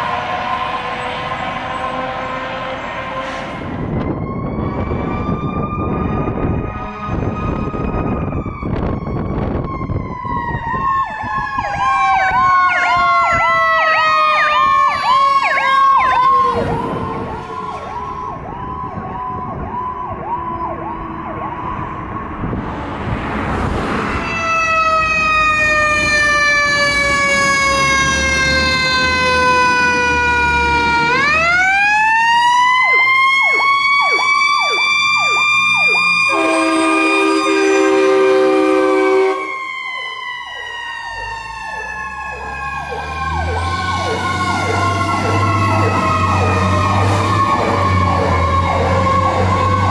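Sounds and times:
fire truck sirens wailing and yelping: 0.0 - 49.9
diesel engine rumble: 14.5 - 49.9.

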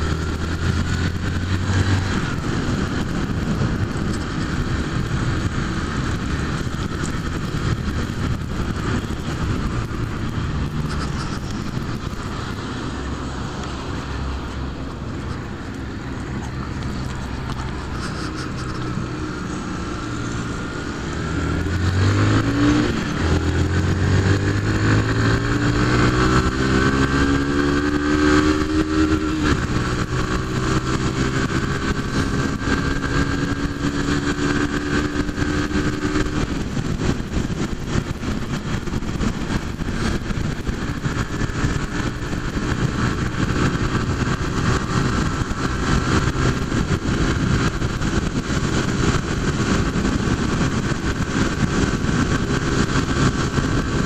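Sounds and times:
motorcycle engine accelerating: 0.0 - 54.0
wind noise on microphone: 0.0 - 54.0.

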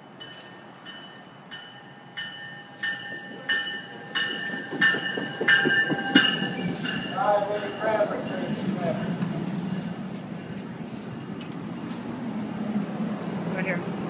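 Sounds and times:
train bell ringing: 0.0 - 10.6
train wheels clattering on rails: 2.3 - 12.1.

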